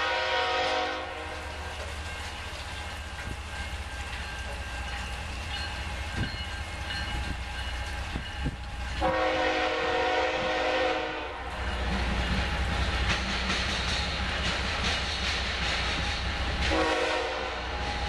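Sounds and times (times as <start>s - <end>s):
locomotive air horn: 0.0s - 1.5s, 9.0s - 11.5s, 16.7s - 17.8s
low train engine rumble: 0.0s - 18.0s
rain falling: 0.1s - 10.7s.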